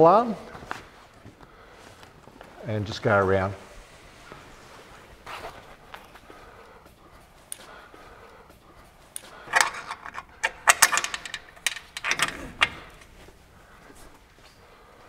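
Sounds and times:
awning arms clicking and rattling: 9.2 - 13.3.

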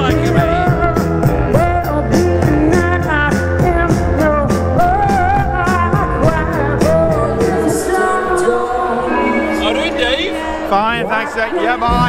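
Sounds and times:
woman singing pop music: 0.0 - 9.6
steady beat: 9.2 - 12.0.

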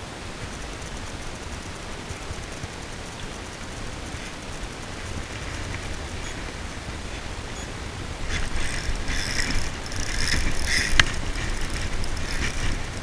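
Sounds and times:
wind rumble on microphone: 0.0 - 13.0
fishing reel ratcheting: 8.3 - 13.0
sharp click: 8.4 - 13.0.

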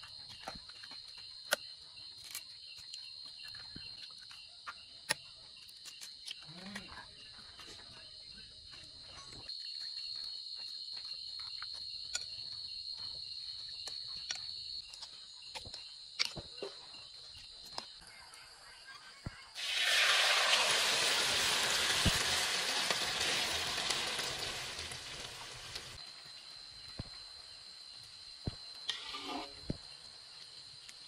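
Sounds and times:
night insects chirping: 0.0 - 31.0
metal spoon scraping in bowl: 28.9 - 29.6.

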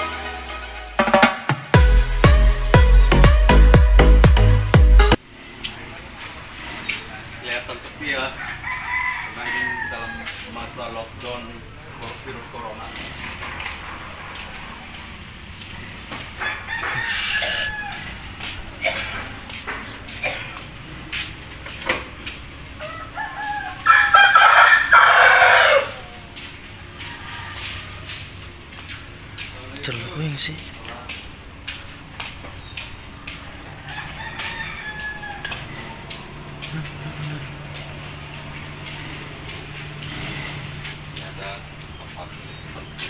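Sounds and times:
background music: 0.0 - 5.2
rooster crowing: 8.2 - 10.8, 16.2 - 18.5, 22.8 - 28.4, 33.3 - 38.6
faint footsteps: 8.6 - 23.9, 25.6 - 43.0
faint voices: 35.3 - 40.0.

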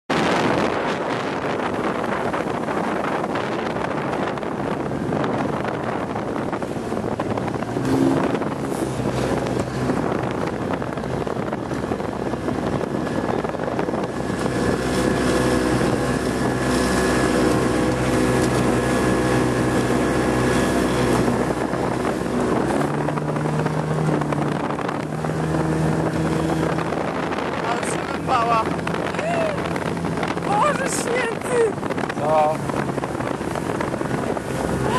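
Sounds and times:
outboard motorboat passing: 0.1 - 34.9
wind buffeting microphone: 0.1 - 34.9.

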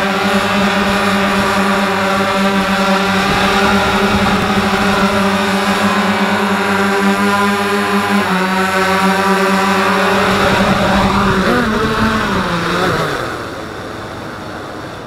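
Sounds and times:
electric motors and rotors humming: 0.0 - 14.4.

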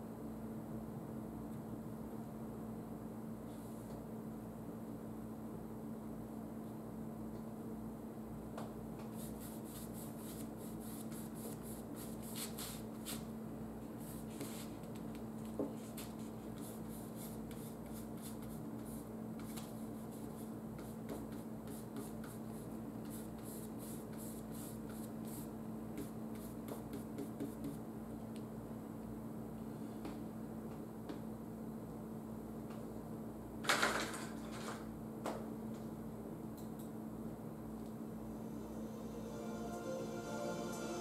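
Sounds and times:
paintbrush scratching on canvas: 9.1 - 13.2, 15.8 - 27.8
low hum: 37.7 - 41.0.

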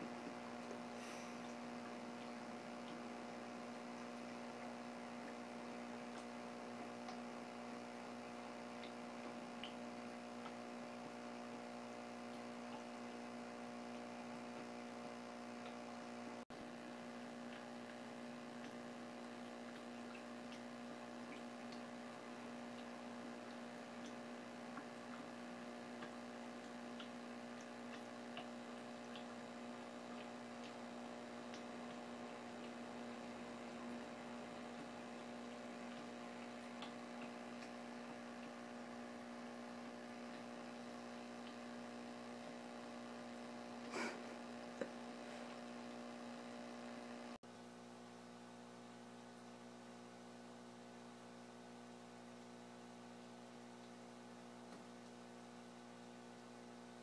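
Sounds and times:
electrical hum: 0.0 - 57.0
faint ticks: 0.3 - 15.8, 16.6 - 43.6.

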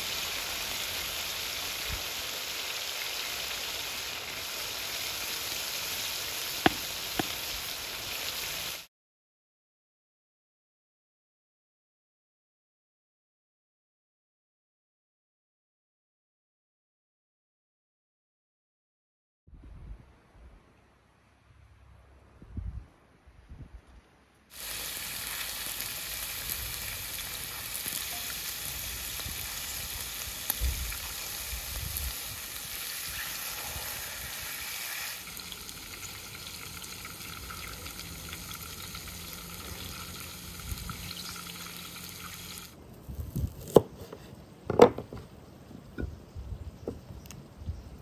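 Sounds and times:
food sizzling in oil: 0.0 - 8.9, 24.5 - 42.7
knife striking cutting board: 6.6 - 7.3.

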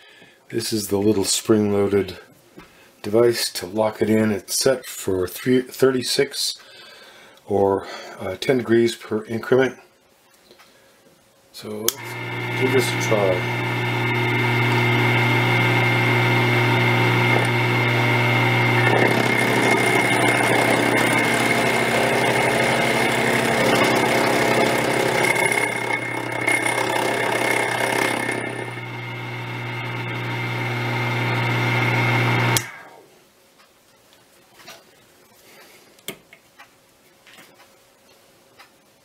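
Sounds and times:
milling machine motor whine: 12.0 - 33.0.

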